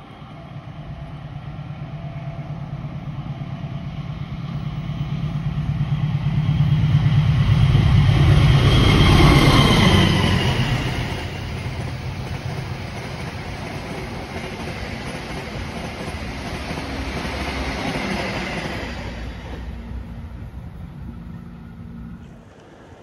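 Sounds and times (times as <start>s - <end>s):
train coaches rolling on rails: 5.2s - 23.0s.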